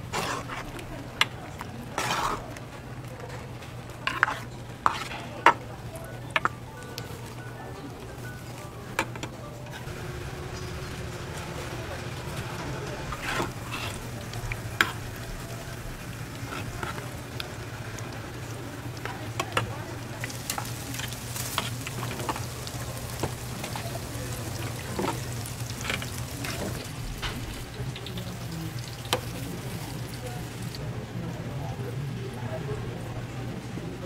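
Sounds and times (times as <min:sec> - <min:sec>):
sauce bubbling in a pan: 0:00.0 - 0:03.1, 0:09.8 - 0:30.8
steady low hum: 0:00.0 - 0:24.6.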